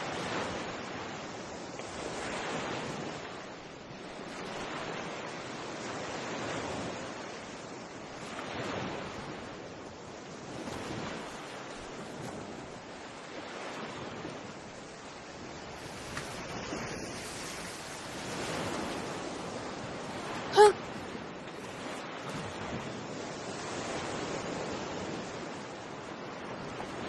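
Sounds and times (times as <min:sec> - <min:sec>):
surf washing against rocks: 0:00.0 - 0:27.0.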